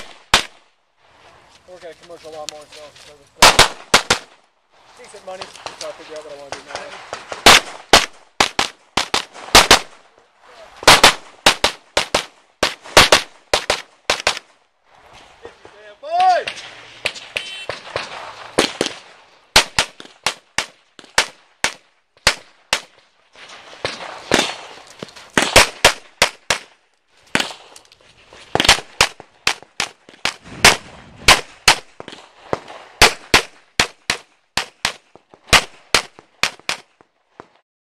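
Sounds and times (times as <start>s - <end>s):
pistol shots: 0.0s - 0.6s, 3.4s - 4.4s, 6.5s - 10.0s, 10.8s - 14.5s, 16.4s - 22.9s, 23.8s - 26.7s, 27.3s - 27.7s, 28.5s - 36.9s.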